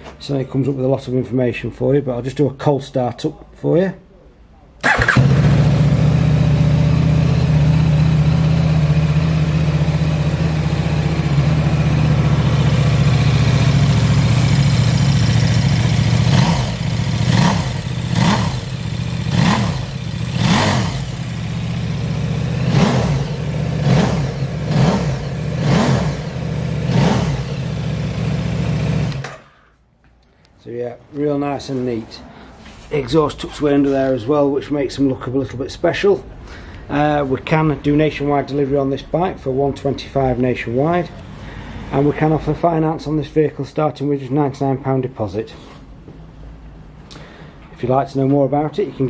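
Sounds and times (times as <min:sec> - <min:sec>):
engine revving: 0:04.8 - 0:29.4
motorcycle engine idling: 0:04.9 - 0:29.5.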